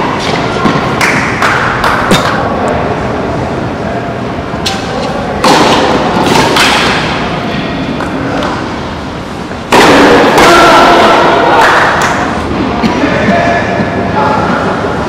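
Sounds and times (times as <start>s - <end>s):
steady background noise: 0.0s - 15.0s
tennis ball hit by racket: 5.4s - 7.2s, 9.7s - 10.8s.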